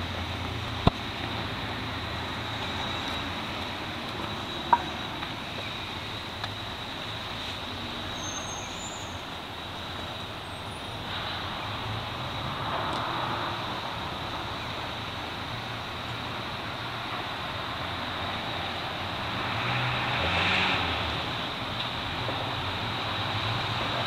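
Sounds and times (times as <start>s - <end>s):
high-pitched whine: 0.0s - 16.0s
distant road traffic: 0.0s - 24.0s.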